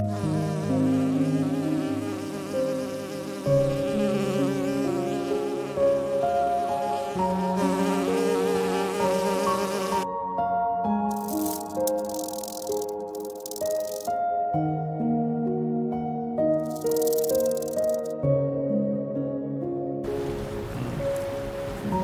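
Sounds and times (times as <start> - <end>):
flying insect wing buzz: 0.0 - 10.1, 11.1 - 14.1, 16.6 - 18.1
soft background music: 0.0 - 22.0.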